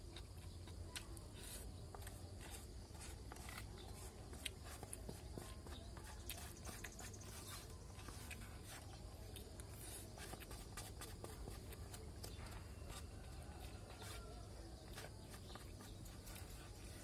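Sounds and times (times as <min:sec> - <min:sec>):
plastic spoon scraping styrofoam box: 0:01.3 - 0:17.0.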